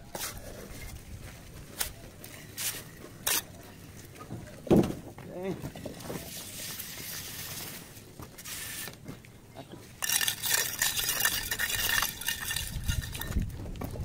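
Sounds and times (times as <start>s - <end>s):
trowel scraping mortar on brick: 1.8s - 3.6s, 6.1s - 9.0s, 10.0s - 13.5s.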